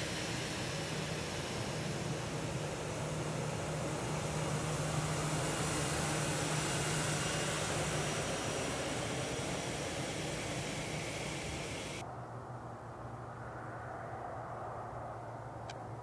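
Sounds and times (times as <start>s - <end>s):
jet engines taxiing: 0.0s - 12.0s.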